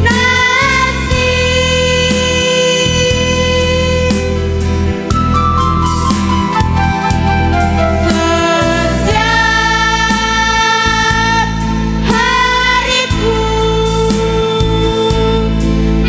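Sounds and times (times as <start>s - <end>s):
instrumental accompaniment: 0.0s - 16.0s
girls' choir singing: 8.1s - 13.5s.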